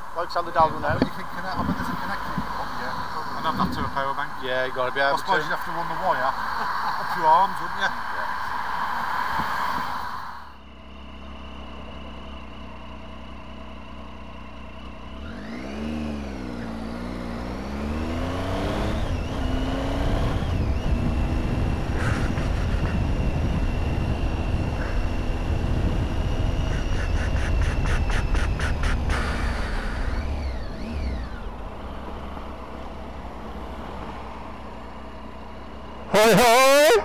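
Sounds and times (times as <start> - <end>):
wind rush while riding: 0.0 - 10.2, 18.7 - 31.0
motorcycle engine: 0.0 - 37.0.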